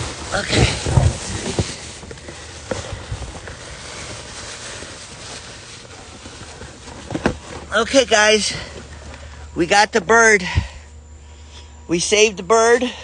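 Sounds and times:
faint rustle: 0:00.0 - 0:09.6
outdoor background hiss: 0:00.0 - 0:13.0.

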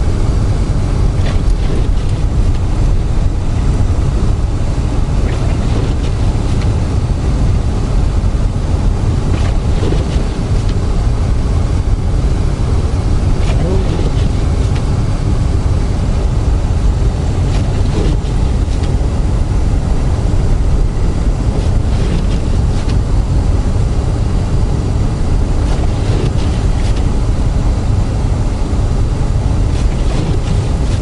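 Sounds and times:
car engine rumble inside cabin: 0:00.0 - 0:31.0
tyre noise on snow: 0:01.0 - 0:07.5, 0:09.0 - 0:11.3, 0:12.4 - 0:19.5, 0:20.6 - 0:23.2, 0:25.6 - 0:27.2, 0:29.6 - 0:31.0.

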